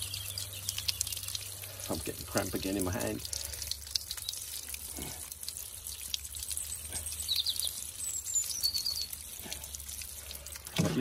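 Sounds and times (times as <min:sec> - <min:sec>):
small bird chirping: 0:00.0 - 0:01.6, 0:06.5 - 0:09.2
water spattering from watering can: 0:00.0 - 0:11.0.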